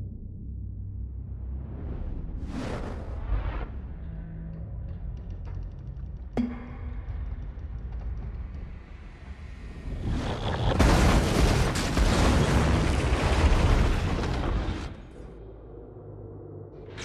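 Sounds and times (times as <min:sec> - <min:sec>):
low rumble: 0:00.0 - 0:17.0
crash of smashing masonry and debris: 0:10.8 - 0:15.0.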